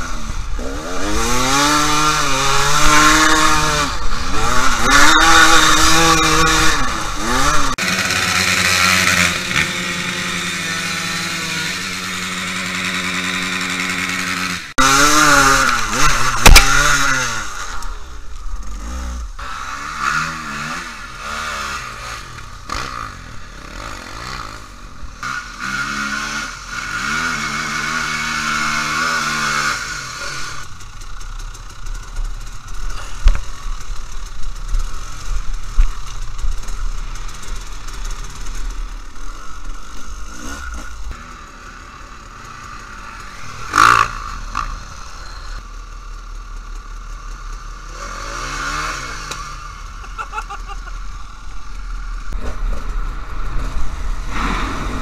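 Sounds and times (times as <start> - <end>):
dirt bike engines revving: 0.0 - 55.0
loud engine burst: 47.9 - 55.0.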